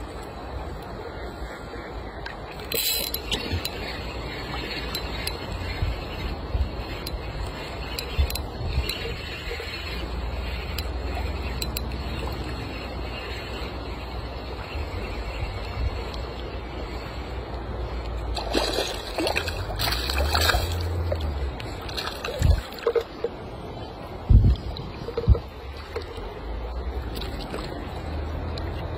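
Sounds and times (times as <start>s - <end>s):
wind rumbling on microphone: 0.0s - 28.9s
fish splashing at water surface: 18.3s - 23.2s.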